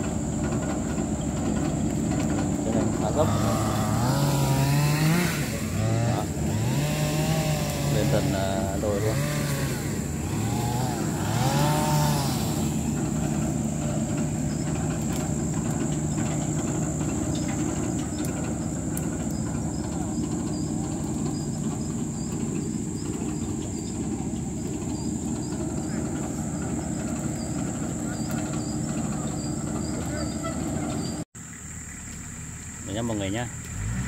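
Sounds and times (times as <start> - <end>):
tractor diesel engine under load: 0.0 - 34.0.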